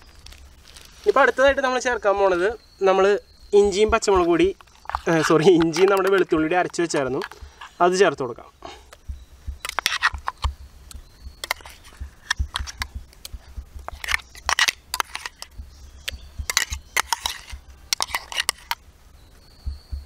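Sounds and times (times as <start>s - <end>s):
steel spoon scraping a bowl: 9.6s - 10.4s, 11.4s - 12.9s, 13.9s - 15.5s, 16.1s - 18.8s.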